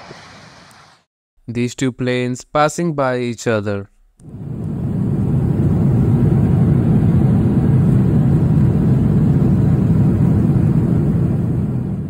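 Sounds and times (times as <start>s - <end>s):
airliner cabin drone: 4.2s - 12.0s.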